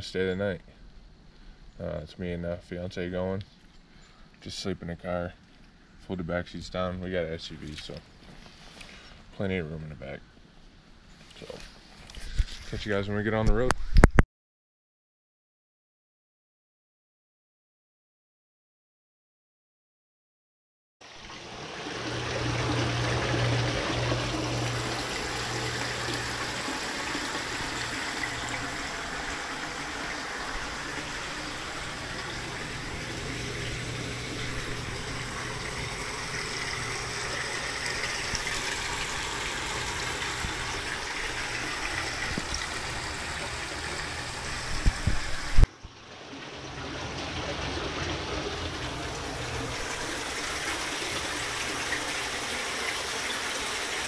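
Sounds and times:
stream water rushing: 0:21.0 - 0:54.0.

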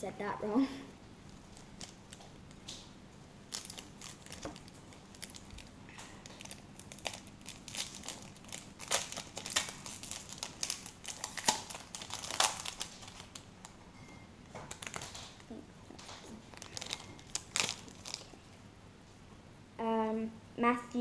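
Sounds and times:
foil wrapper tearing and crinkling: 0:03.5 - 0:13.8, 0:14.6 - 0:15.4, 0:16.0 - 0:18.4.

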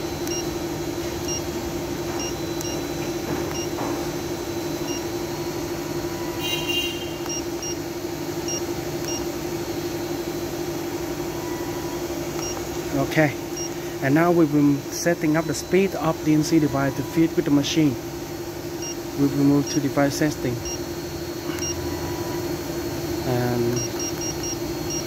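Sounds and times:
electrical hum: 0:00.0 - 0:25.0
short high keypad beeps: 0:06.2 - 0:07.8.

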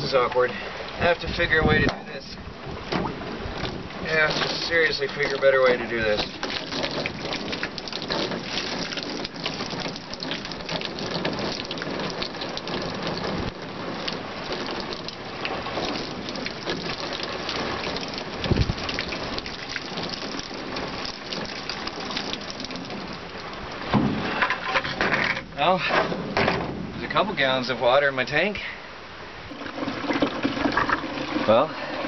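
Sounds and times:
water splattering onto truck bed: 0:00.0 - 0:28.6, 0:29.4 - 0:32.0
low thump: 0:02.8 - 0:03.8, 0:23.9 - 0:24.4, 0:25.9 - 0:27.0.

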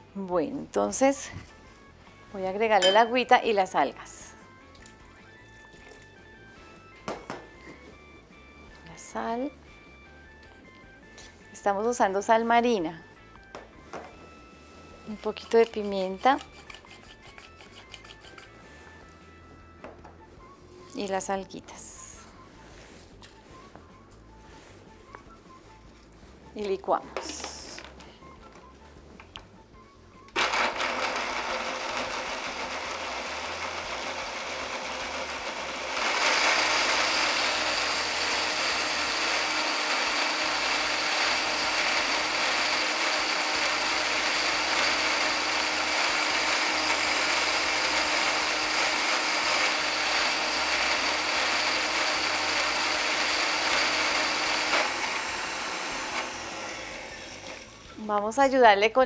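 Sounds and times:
blender running: 0:30.4 - 0:58.0.

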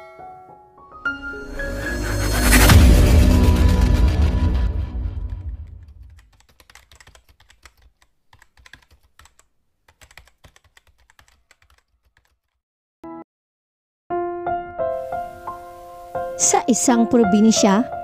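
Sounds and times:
keyboard typing clicks: 0:06.1 - 0:12.6.

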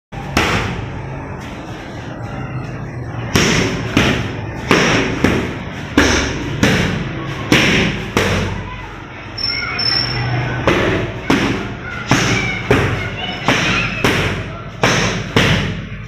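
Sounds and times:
boxing gloves punching mitts: 0:03.2 - 0:08.6, 0:10.7 - 0:16.0.

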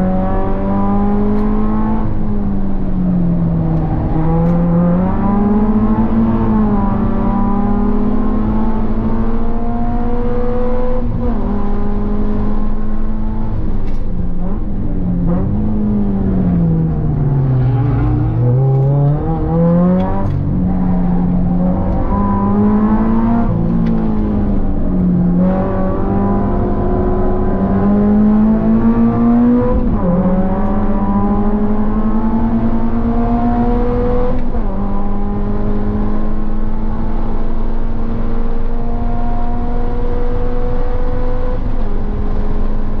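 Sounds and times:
car engine revving at full throttle: 0:00.0 - 0:43.0.

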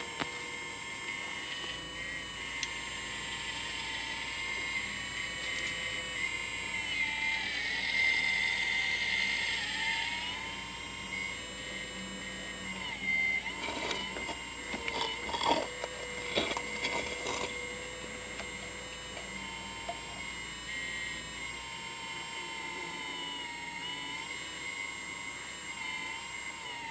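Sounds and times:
hydraulic pump whine: 0:00.0 - 0:26.9
bucket knocking and scraping soil: 0:13.6 - 0:17.5.

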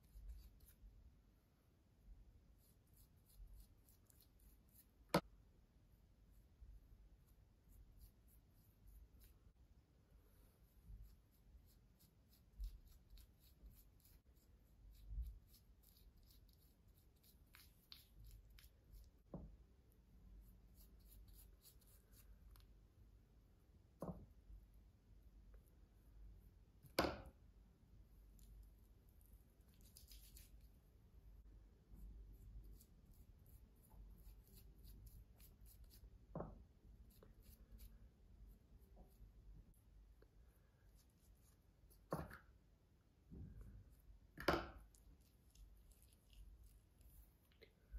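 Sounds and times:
brush bristles rubbing wet hair: 0:00.0 - 0:01.0, 0:02.4 - 0:05.2, 0:10.4 - 0:19.4, 0:20.5 - 0:22.7, 0:28.2 - 0:31.0, 0:32.0 - 0:36.2, 0:44.8 - 0:47.9
brush strokes through wet hair: 0:28.3 - 0:30.8, 0:44.8 - 0:47.9.

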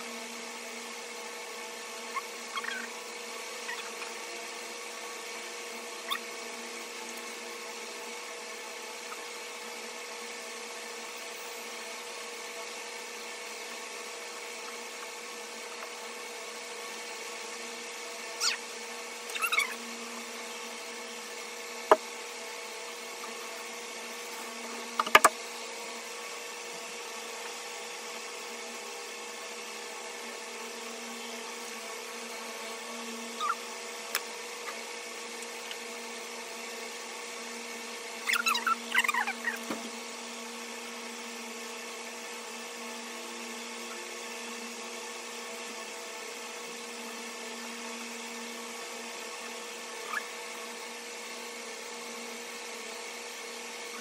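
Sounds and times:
brief squeaks: 0:19.3 - 0:19.8.

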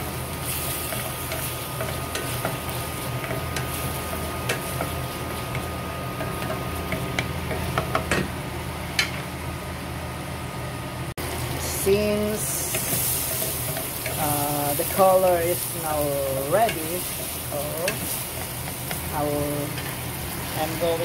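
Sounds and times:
vegetables sizzling in a pan: 0:00.0 - 0:09.2, 0:11.2 - 0:21.0
steady low hum: 0:00.0 - 0:21.0
spatula scraping a pan: 0:16.5 - 0:20.0.

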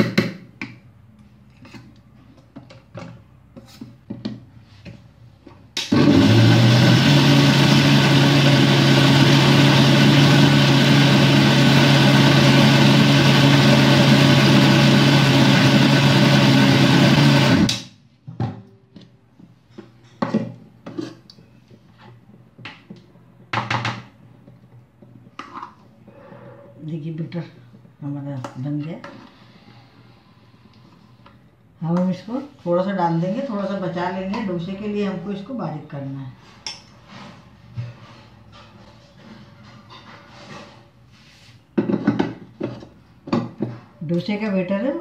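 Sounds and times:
mixer grinder motor: 0:05.9 - 0:17.8.

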